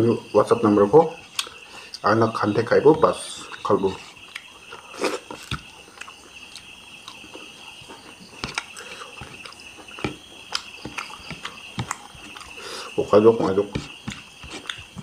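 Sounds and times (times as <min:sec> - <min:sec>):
person chewing and lip smacking: 0:03.5 - 0:15.0.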